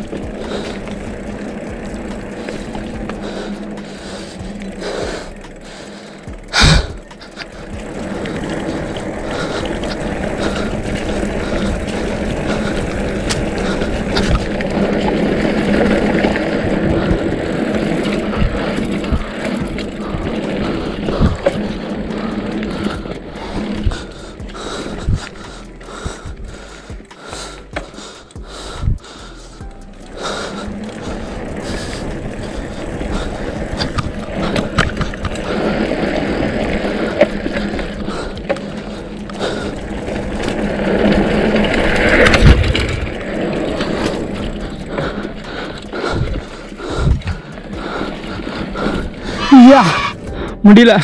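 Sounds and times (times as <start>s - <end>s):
tyre and wind rush: 6.3s - 26.9s, 30.6s - 51.0s
bike knocking over bumps: 6.3s - 29.1s, 30.2s - 49.3s.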